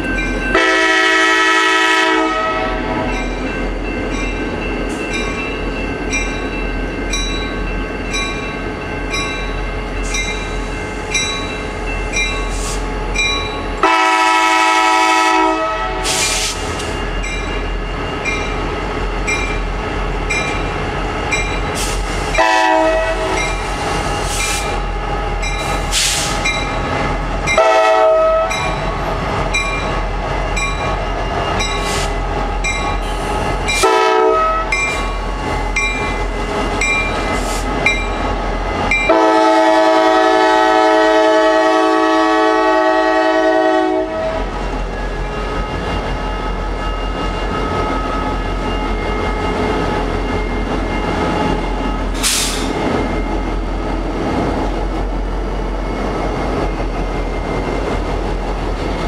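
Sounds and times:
locomotive horn blasts: 0:00.6 - 0:03.0, 0:13.8 - 0:16.2, 0:22.4 - 0:23.4, 0:27.6 - 0:28.6, 0:33.8 - 0:34.8, 0:39.1 - 0:44.4.

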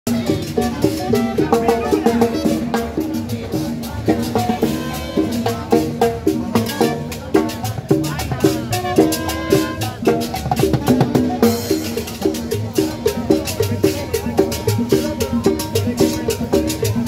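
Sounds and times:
congas and timbales beat: 0:00.1 - 0:17.0
latin dance band: 0:00.1 - 0:17.0.

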